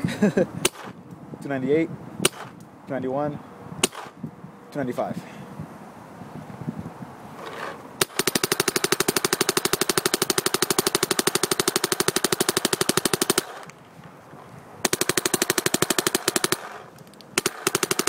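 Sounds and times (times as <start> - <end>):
paintball marker firing rapidly: 0.6 - 1.0, 2.2 - 2.6, 3.8 - 4.2, 8.0 - 13.7, 14.8 - 18.0.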